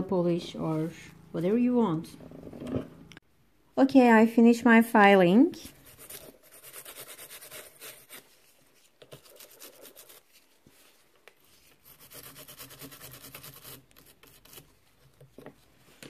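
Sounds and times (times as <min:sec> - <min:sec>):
brush scrubbing nail: 0:05.8 - 0:08.2, 0:09.1 - 0:10.4, 0:11.6 - 0:14.8.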